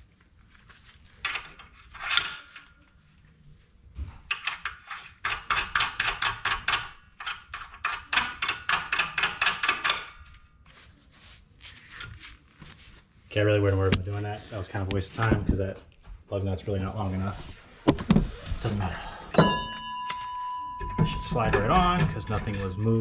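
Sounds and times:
hand ratchet clicking: 0:04.3 - 0:10.2.

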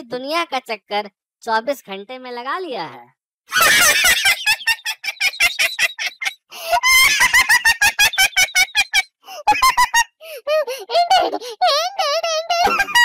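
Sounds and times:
man laughing heartily: 0:03.5 - 0:13.0.

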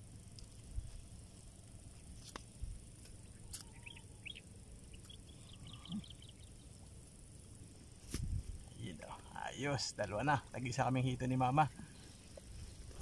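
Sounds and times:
bird chirps: 0:03.2 - 0:06.9.

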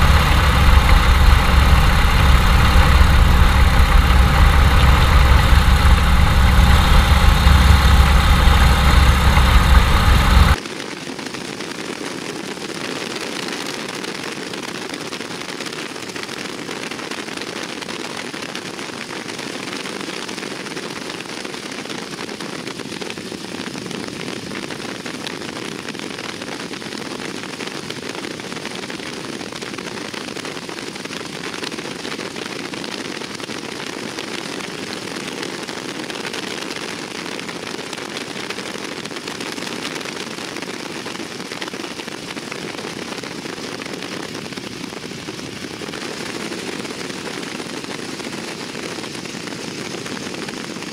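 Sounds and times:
propeller plane engine: 0:00.0 - 0:10.6
wind rush: 0:00.0 - 0:10.6.

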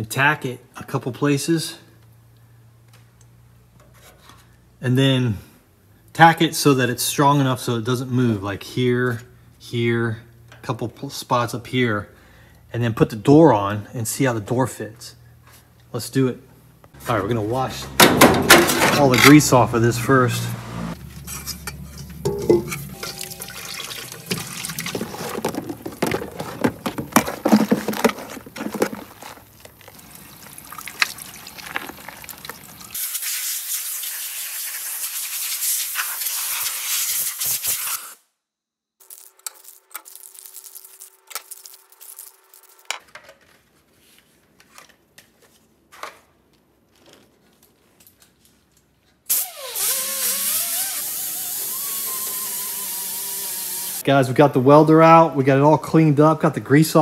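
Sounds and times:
water splashing in sink: 0:22.3 - 0:26.1, 0:29.8 - 0:34.9
air blow gun hissing: 0:49.3 - 0:54.0
power tool running loudly: 0:49.8 - 0:54.0.

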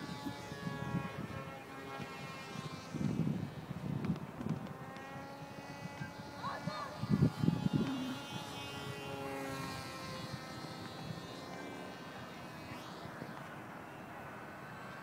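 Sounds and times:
wind buffeting microphone: 0:00.0 - 0:11.9
model plane motor whining: 0:00.0 - 0:15.0.

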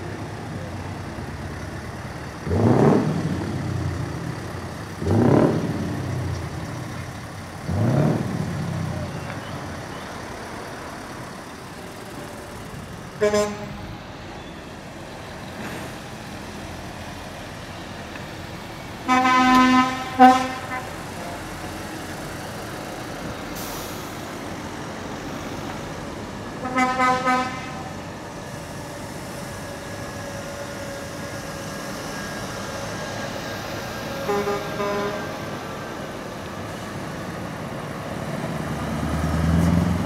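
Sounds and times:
truck engines running: 0:00.0 - 0:40.0
truck horn blasts: 0:13.2 - 0:13.9, 0:19.0 - 0:21.5, 0:26.6 - 0:27.9, 0:34.2 - 0:35.4.

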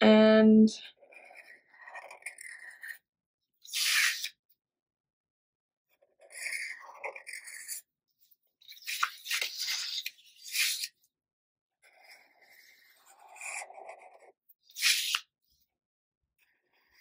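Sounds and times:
marker scratching on paper: 0:01.0 - 0:03.0, 0:03.6 - 0:04.4, 0:06.0 - 0:07.8, 0:08.6 - 0:11.0, 0:11.8 - 0:15.3.

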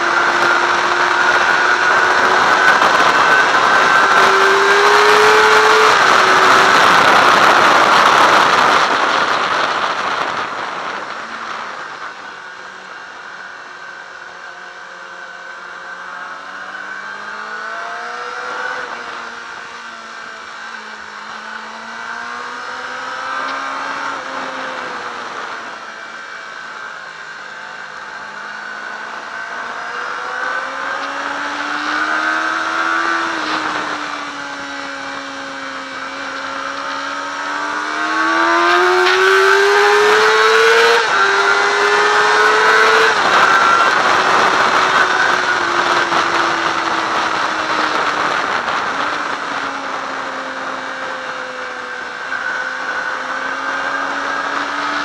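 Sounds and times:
motorcycle engine revving: 0:00.0 - 0:55.0
wind rushing: 0:29.3 - 0:51.1.

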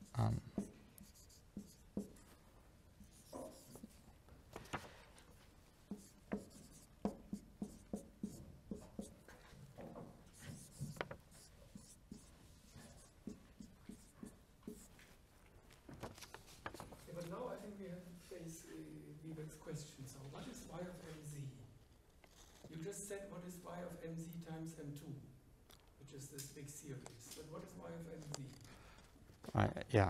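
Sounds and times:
marker writing on whiteboard: 0:00.0 - 0:02.4, 0:03.0 - 0:04.1, 0:05.8 - 0:15.1.

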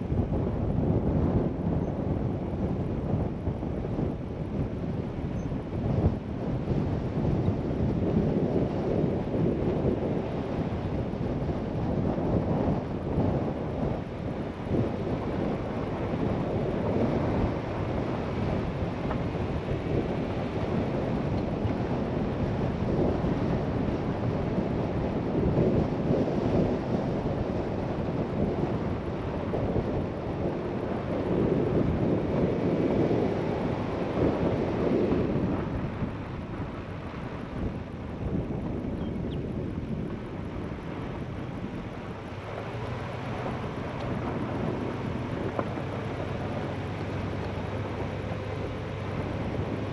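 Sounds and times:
wind noise: 0:00.0 - 0:49.9
tyres rumbling on gravel: 0:26.8 - 0:38.9, 0:39.6 - 0:49.9.

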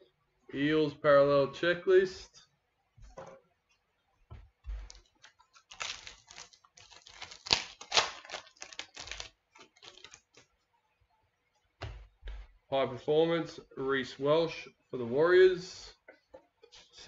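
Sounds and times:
card wrapper crinkling and snapping: 0:04.9 - 0:10.5.

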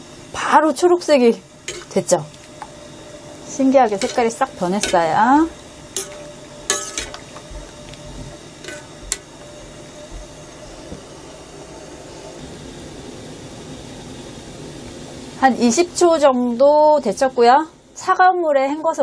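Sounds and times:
steady hiss: 0:00.0 - 0:18.0
metal utensil scraping saucepan: 0:01.7 - 0:02.5, 0:03.9 - 0:05.2, 0:05.9 - 0:07.4, 0:08.6 - 0:09.3.

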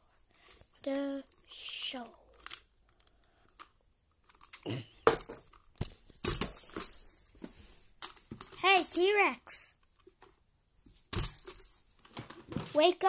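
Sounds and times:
plastic toy clicks and rustles: 0:00.4 - 0:07.3, 0:08.0 - 0:09.1.

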